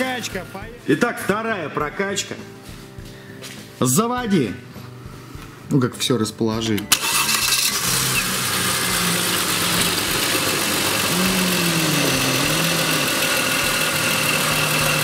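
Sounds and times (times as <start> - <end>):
car engine idling: 6.9 - 15.0.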